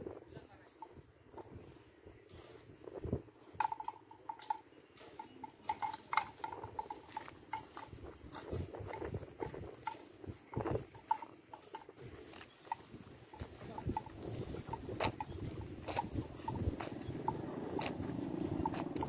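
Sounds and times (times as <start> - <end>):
cattle stepping: 3.6 - 19.0
cattle tearing grass: 5.8 - 19.0.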